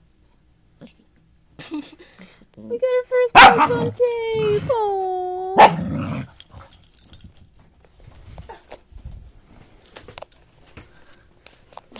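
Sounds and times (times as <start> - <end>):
dog barking: 3.4 - 4.0, 5.6 - 6.2.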